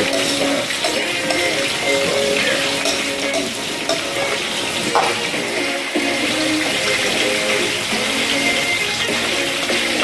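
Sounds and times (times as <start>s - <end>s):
metal clink on a pan: 0.0s - 5.4s
vegetables sizzling in hot oil: 0.0s - 10.0s.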